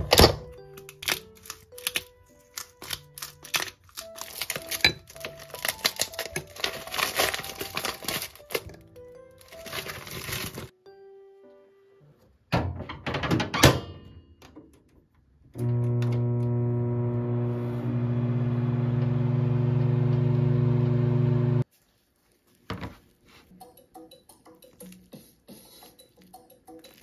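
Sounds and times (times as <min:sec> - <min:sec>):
microwave click: 0:15.6 - 0:21.6
microwave humming: 0:15.6 - 0:21.6.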